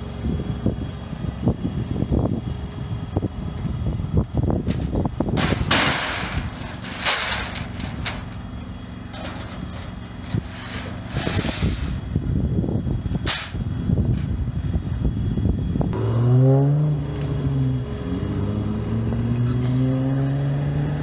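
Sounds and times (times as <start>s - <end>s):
truck engine humming: 0.0s - 19.8s
sheet metal stencils clanking: 4.6s - 12.1s, 13.2s - 13.6s.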